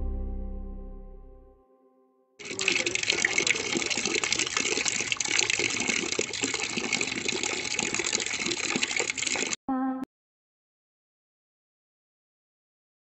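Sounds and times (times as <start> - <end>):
water pouring into plastic bucket: 2.4 - 9.6.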